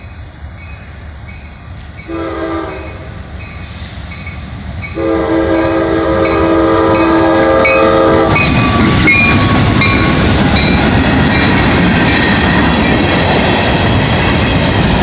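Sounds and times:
crossing bell dinging: 0.0 - 13.0
train rumble and wheel clatter: 0.0 - 15.0
locomotive air horn: 2.1 - 4.0, 5.0 - 8.6.

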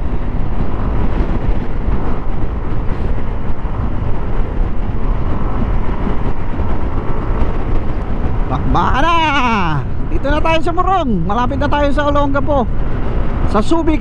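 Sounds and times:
wind and road noise: 0.0 - 14.0.

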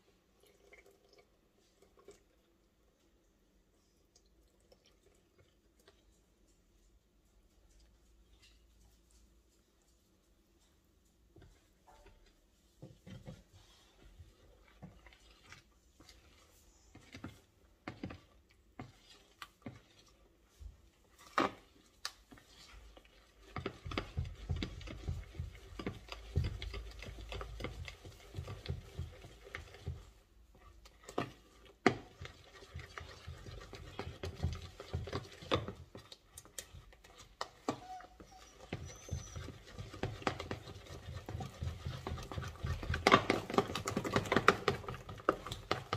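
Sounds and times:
fork beating batter in bowl: 11.2 - 45.9.

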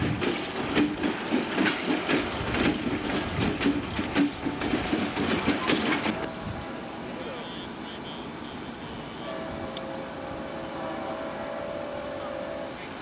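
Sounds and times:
train wheels clattering over rail joints: 0.0 - 6.4
diesel locomotive rumbling: 0.0 - 13.0.

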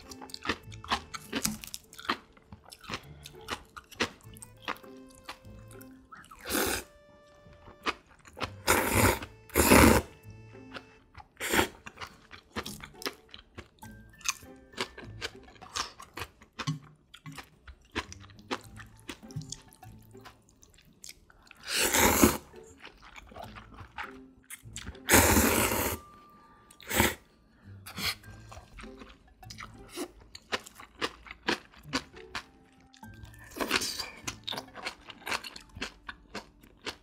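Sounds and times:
wet chewing and smacking: 0.0 - 25.6, 27.9 - 37.0
noodles being slurped: 6.2 - 6.9, 8.4 - 10.2, 11.4 - 12.8, 21.4 - 24.2, 24.9 - 26.1.

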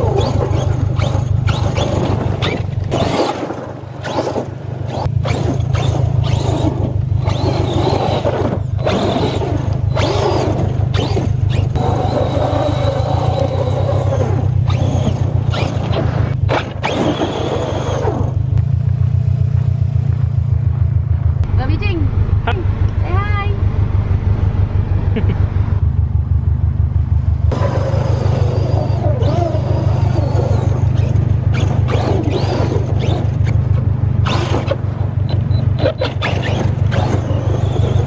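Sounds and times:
toy truck motor revving: 0.0 - 3.4, 4.0 - 15.9, 16.6 - 18.4, 27.5 - 33.6, 34.2 - 38.0
steady low hum: 0.0 - 38.0.

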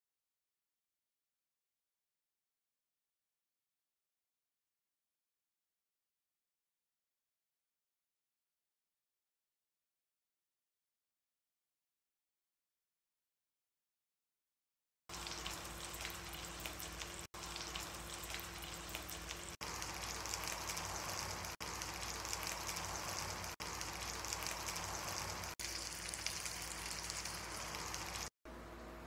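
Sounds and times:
fish sizzling in hot oil: 15.1 - 28.3.

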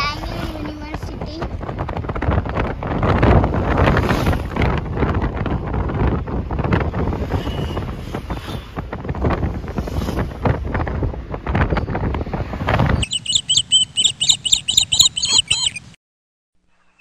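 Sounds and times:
wind buffeting microphone: 0.0 - 15.8
vehicle road noise: 0.0 - 16.0
bird chirping rapidly: 12.9 - 16.0.

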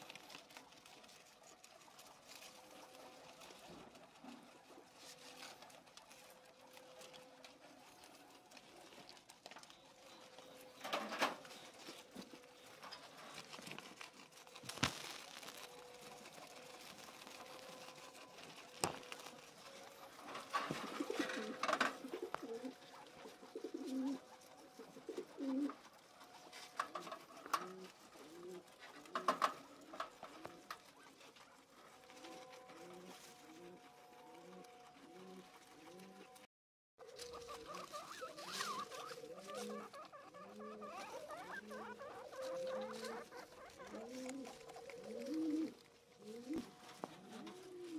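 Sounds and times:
rustling of grass and wire cage: 0.0 - 36.4, 37.0 - 47.9
soft low cooing calls: 17.4 - 25.9, 37.0 - 47.9.

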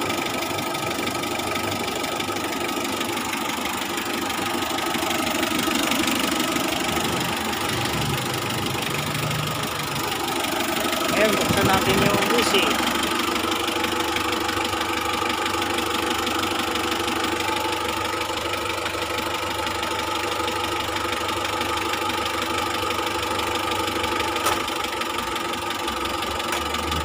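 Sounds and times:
blower motor humming: 3.4 - 14.6.

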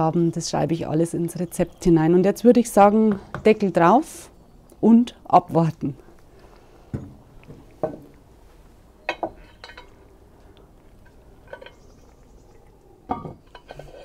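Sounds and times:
cast iron pot and lid clinking: 9.0 - 10.0, 11.4 - 11.9, 13.1 - 14.0.

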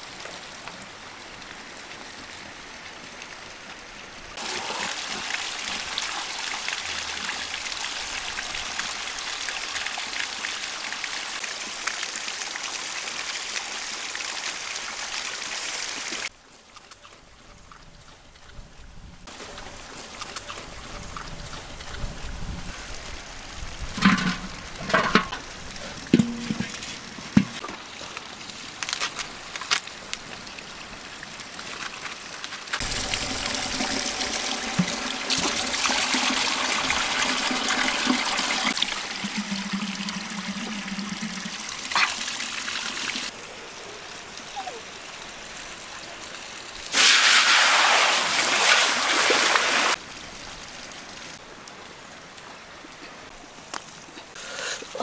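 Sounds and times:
water trickling over rocks: 0.0 - 55.0
water rushing into metal pot: 23.9 - 27.6, 32.8 - 43.3, 46.9 - 50.0.

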